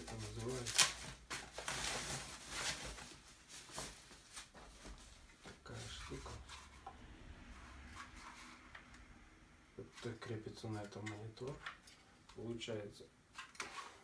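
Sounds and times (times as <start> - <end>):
plastic bag rustling: 0.0 - 6.8.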